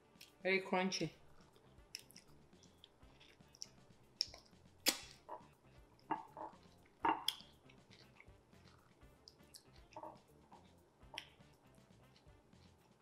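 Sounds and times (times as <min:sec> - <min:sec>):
wet eating mouth sounds: 0:01.3 - 0:13.0.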